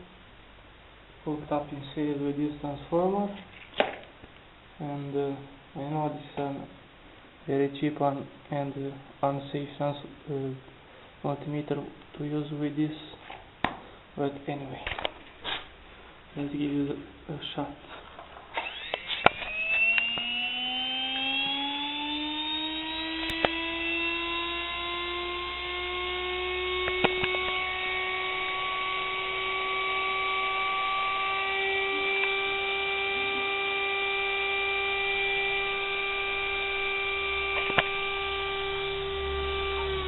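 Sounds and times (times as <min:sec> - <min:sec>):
mixer motor whine: 0:18.5 - 0:40.0
sharp clicks: 0:26.8 - 0:27.6, 0:37.5 - 0:38.0.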